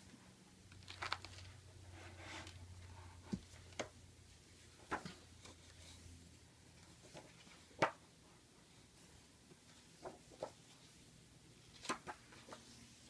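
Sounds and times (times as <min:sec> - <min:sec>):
book pages rustling: 0:00.7 - 0:04.0, 0:04.6 - 0:08.0, 0:09.5 - 0:13.0.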